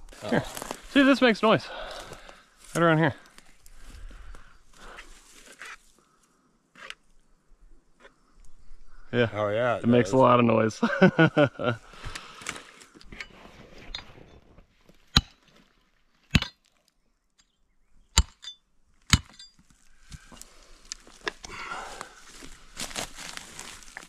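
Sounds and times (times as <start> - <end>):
handling and rustling: 22.2 - 24.0.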